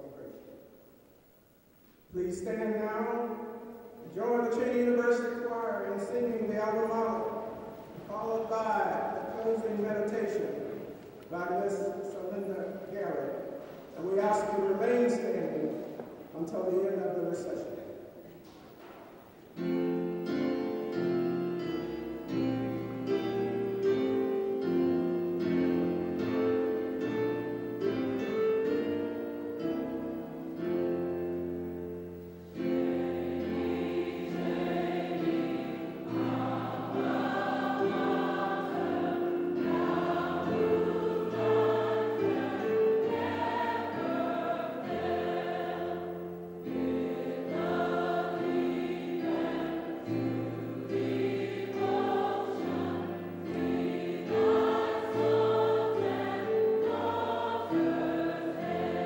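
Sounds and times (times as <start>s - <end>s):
keyboard accompaniment: 0.0s - 59.0s
mixed choir singing: 32.5s - 59.0s.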